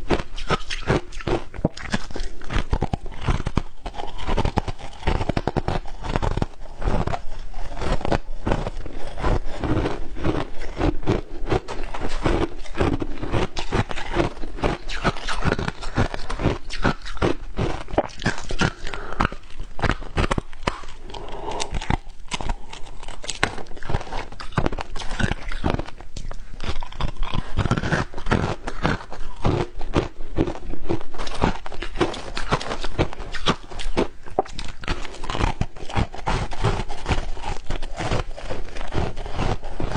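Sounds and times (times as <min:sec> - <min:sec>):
ice crunched between teeth: 0:00.0 - 0:39.9.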